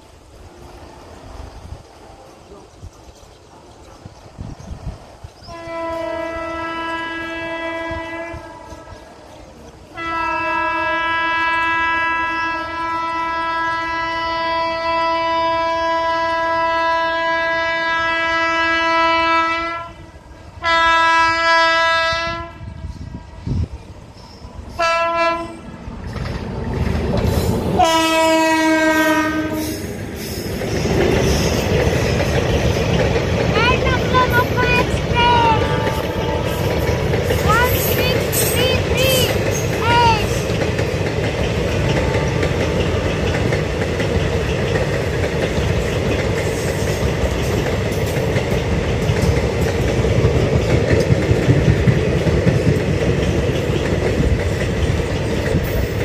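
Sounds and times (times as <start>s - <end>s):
train coaches rumbling past: 0.0s - 56.0s
train horn blasts: 5.4s - 9.2s, 9.9s - 23.5s, 24.7s - 25.7s, 27.8s - 29.8s, 33.8s - 37.0s.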